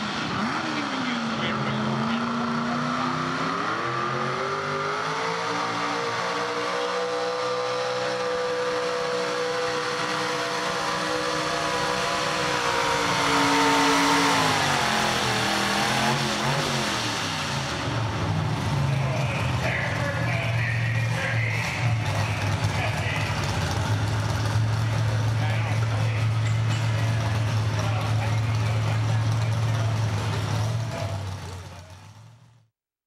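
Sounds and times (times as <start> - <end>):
truck engine revving: 0.0 - 32.7
truck engine idling: 17.4 - 32.7.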